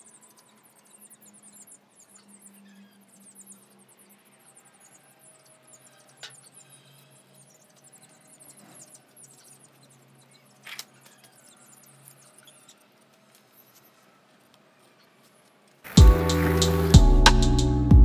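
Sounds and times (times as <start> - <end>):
faint high chirps: 0.0 - 17.8
background music with beat: 15.9 - 18.0.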